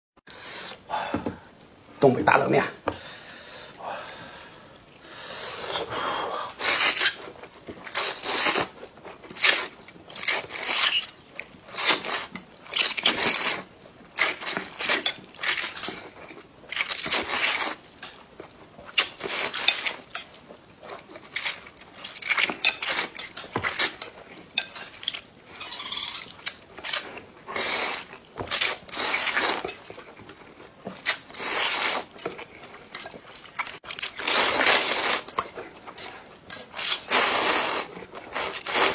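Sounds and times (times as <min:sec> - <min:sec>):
man slurping noodles: 0:36.9 - 0:38.9.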